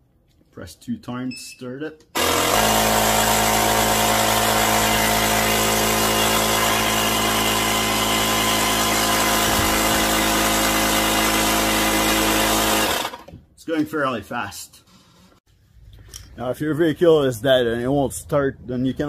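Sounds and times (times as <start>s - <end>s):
air compressor running: 2.2s - 13.3s.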